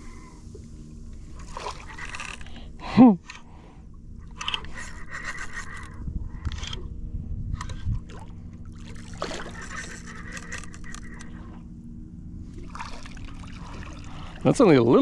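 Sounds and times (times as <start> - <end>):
water sloshing: 1.2 - 2.6, 7.8 - 11.6, 12.4 - 15.0.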